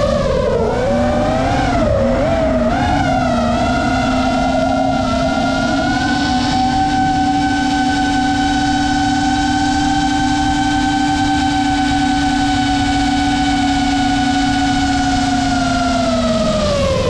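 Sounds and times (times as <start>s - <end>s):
quadcopter propellers whining: 0.0s - 17.0s
rushing wind noise: 0.0s - 17.0s.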